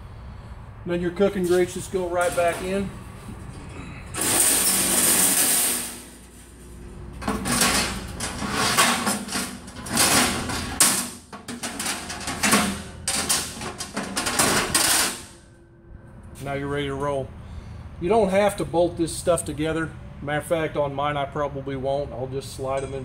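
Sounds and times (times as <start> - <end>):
metal grates clanking: 1.2 - 15.5
metal grate scraping on steel: 1.3 - 15.5.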